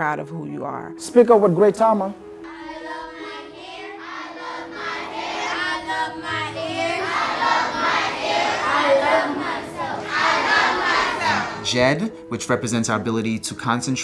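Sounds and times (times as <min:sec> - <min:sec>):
children chanting and singing: 0:02.5 - 0:11.7.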